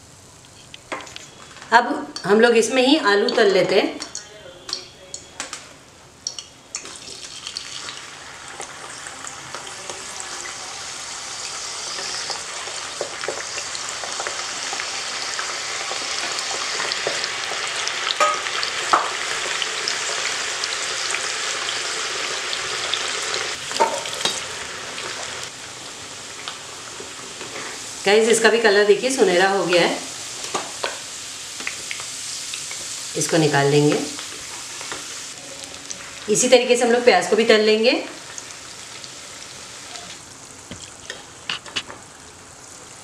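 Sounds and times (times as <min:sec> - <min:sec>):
potatoes sizzling in hot oil: 0:06.3 - 0:43.0
spoon clinking on pan: 0:18.2 - 0:18.5.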